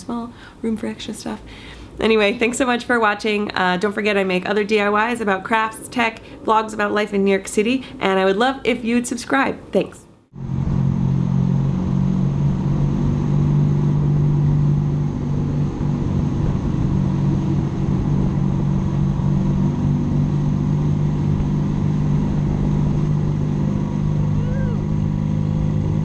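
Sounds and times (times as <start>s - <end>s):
motorcycle engine cruising: 10.3s - 26.0s
road noise: 10.3s - 26.0s.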